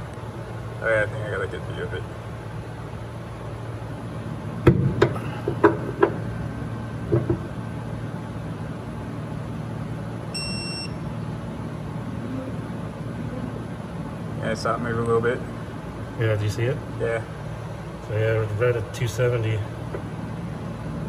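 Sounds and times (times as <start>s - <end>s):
steady low hum: 0.0s - 21.0s
short electronic beep: 10.4s - 11.0s.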